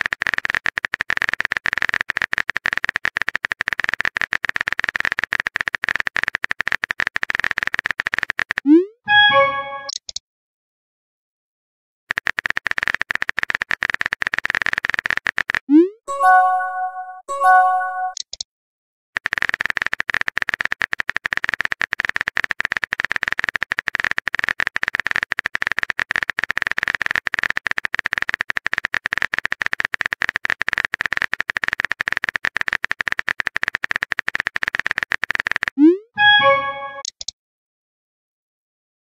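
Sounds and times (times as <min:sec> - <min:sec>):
keyboard typing clicks: 0:00.0 - 0:10.2, 0:12.1 - 0:18.4, 0:19.2 - 0:37.3.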